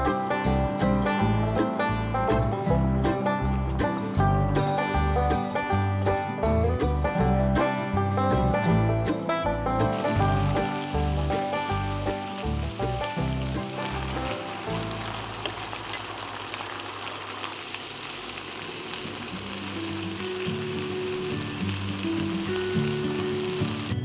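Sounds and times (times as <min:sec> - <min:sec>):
fish sizzling in a pan: 0:09.9 - 0:24.0.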